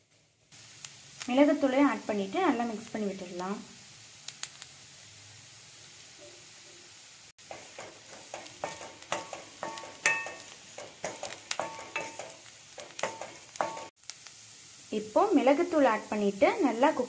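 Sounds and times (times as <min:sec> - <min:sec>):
frying sizzle: 0:00.0 - 0:17.0
low hiss: 0:00.0 - 0:17.0
spatula scraping metal pan: 0:07.4 - 0:13.9.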